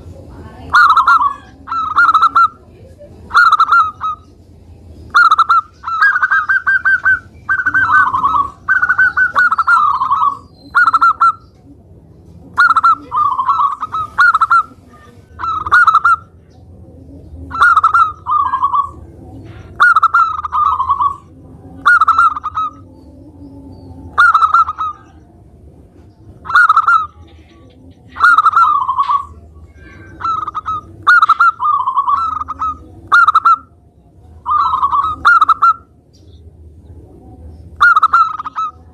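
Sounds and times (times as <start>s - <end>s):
dove cooing: 0.0s - 36.0s, 37.5s - 38.9s.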